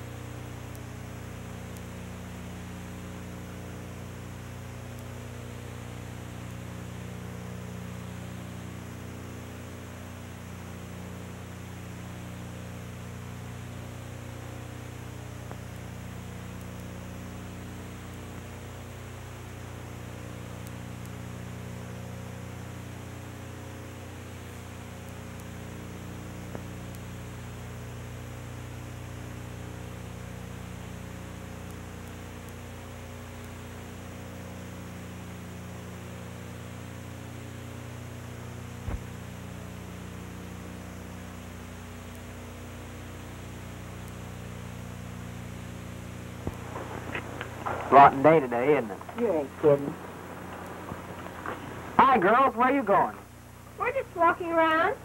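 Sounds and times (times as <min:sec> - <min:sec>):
electrical mains hum: 0:00.0 - 0:55.0
even hiss: 0:46.3 - 0:55.0.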